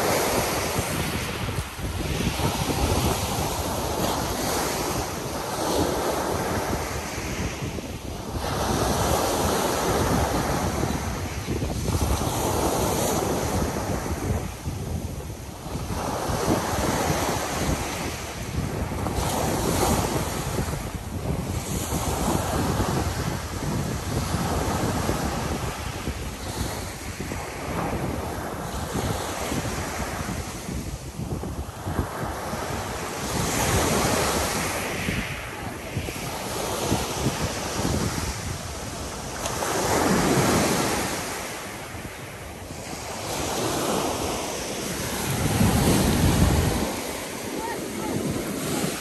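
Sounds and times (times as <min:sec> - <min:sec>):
waves washing up pebble beach: 0:00.0 - 0:49.0
wind buffeting microphone: 0:00.0 - 0:49.0.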